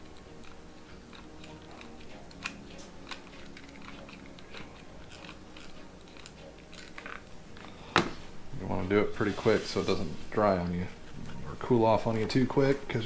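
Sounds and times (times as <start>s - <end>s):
low steady hum: 0.0s - 13.0s
glue gun clicks and crackles: 0.1s - 7.6s.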